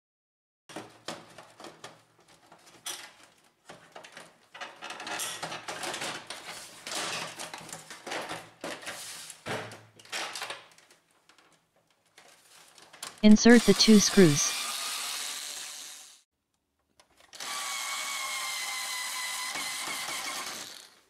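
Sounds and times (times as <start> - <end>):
plastic scraping and rattling: 0.7 - 9.0.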